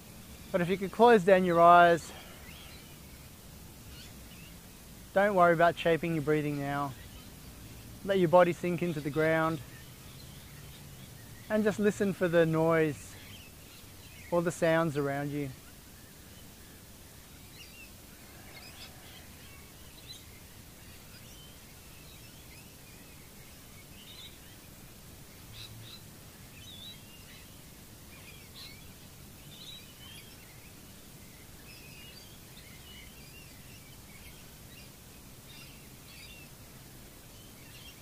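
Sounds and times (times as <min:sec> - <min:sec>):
birds chirping: 0:00.0 - 0:38.0.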